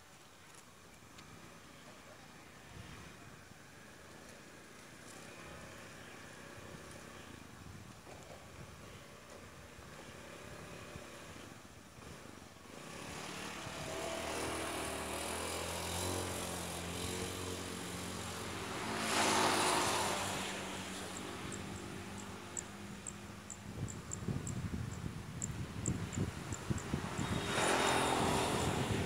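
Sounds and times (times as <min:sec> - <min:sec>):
motor engine approaching: 0:10.0 - 0:24.5, 0:25.5 - 0:29.0.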